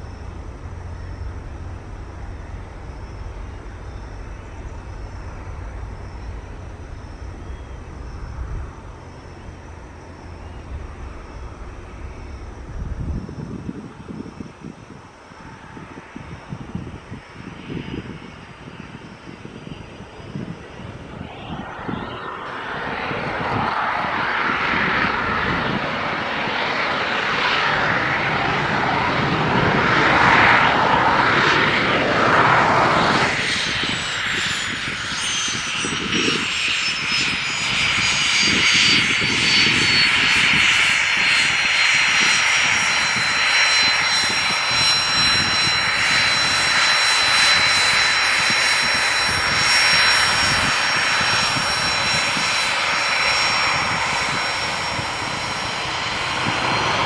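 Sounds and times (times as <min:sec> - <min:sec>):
jet engines whining: 0:00.0 - 0:57.0
jet rush: 0:17.5 - 0:57.0.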